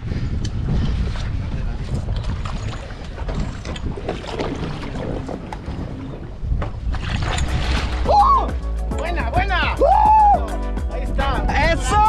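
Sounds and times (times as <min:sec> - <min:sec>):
wind buffeting microphone: 0:00.0 - 0:08.5, 0:11.1 - 0:12.0.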